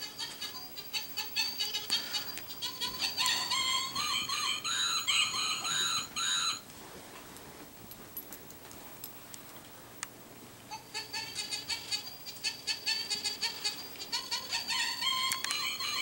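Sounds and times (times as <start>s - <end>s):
puppies yipping and whining: 3.0s - 6.6s.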